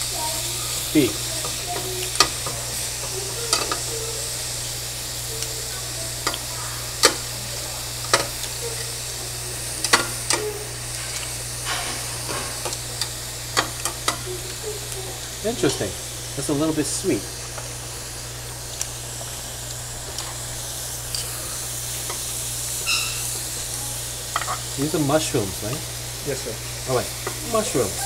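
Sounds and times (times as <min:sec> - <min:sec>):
meat sizzling on grill: 0:00.0 - 0:28.0
metal tongs clicking on grill: 0:01.0 - 0:04.0, 0:06.2 - 0:07.3, 0:08.0 - 0:09.0, 0:09.6 - 0:14.6, 0:18.7 - 0:20.4, 0:21.0 - 0:24.7.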